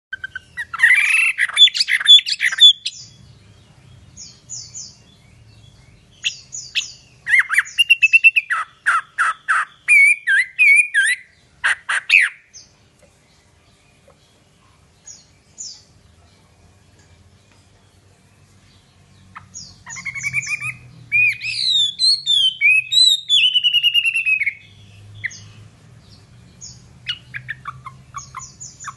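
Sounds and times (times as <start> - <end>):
bird singing whistled phrases: 0.1 - 3.2, 6.2 - 12.5, 19.8 - 25.4.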